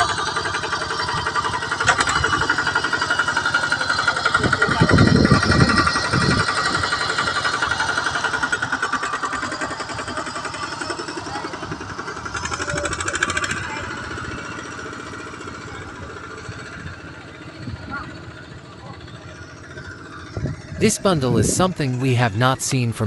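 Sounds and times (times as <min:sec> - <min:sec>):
tractor engine chugging: 0:00.0 - 0:23.0.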